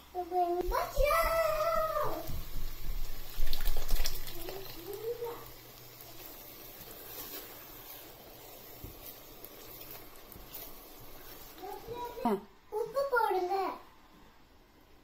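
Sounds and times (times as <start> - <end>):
sauce stirred with a spatula: 0.7 - 12.6
puree plopping into a pot: 3.2 - 4.9.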